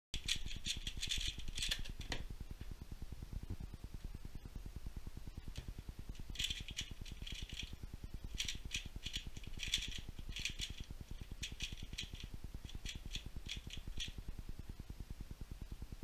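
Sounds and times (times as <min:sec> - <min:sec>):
plastic cube clicking: 0:00.2 - 0:02.2, 0:06.3 - 0:07.7, 0:08.4 - 0:14.2.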